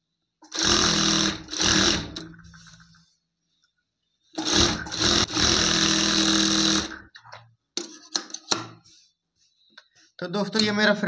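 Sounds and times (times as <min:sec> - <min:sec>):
sewing machine stitching fabric: 0:00.4 - 0:02.8, 0:04.4 - 0:07.1.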